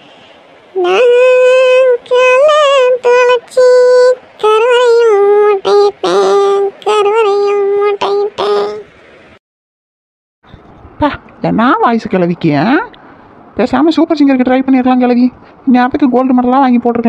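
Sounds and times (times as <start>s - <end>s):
woman singing unaccompanied: 0.7s - 8.9s.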